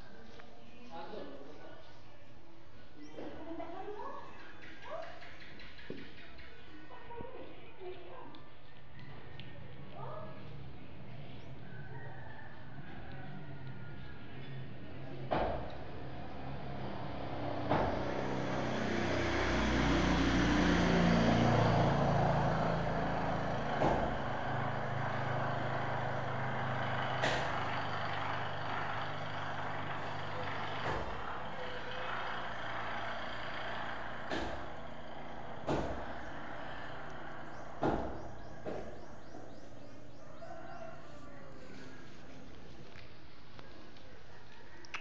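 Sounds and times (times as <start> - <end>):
vehicle engine running: 9.0 - 44.9.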